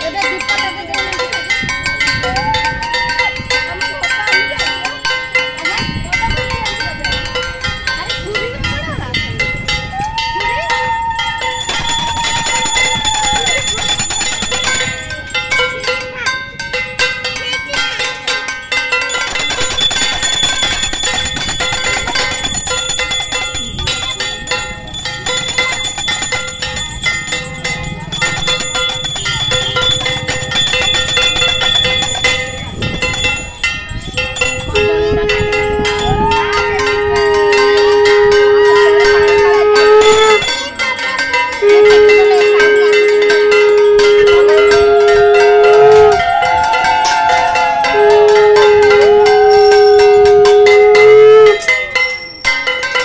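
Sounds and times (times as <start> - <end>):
hand bell ringing rapidly: 0.0 - 53.0.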